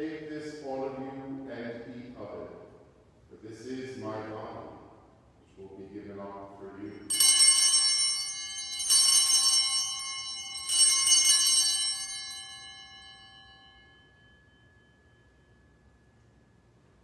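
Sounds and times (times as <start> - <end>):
altar bells ringing: 7.1 - 17.0.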